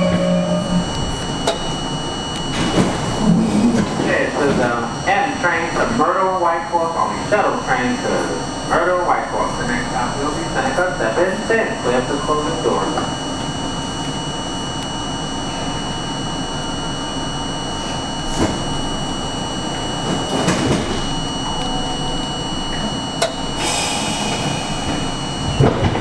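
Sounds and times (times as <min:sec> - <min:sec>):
subway car equipment humming: 0:00.0 - 0:26.0
air hiss: 0:23.6 - 0:24.9.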